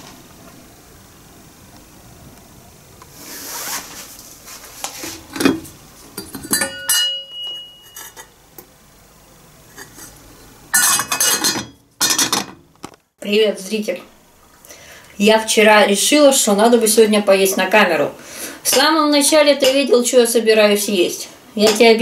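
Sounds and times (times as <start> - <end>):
metal ladle clinking on pot: 6.2 - 8.3, 10.8 - 12.6.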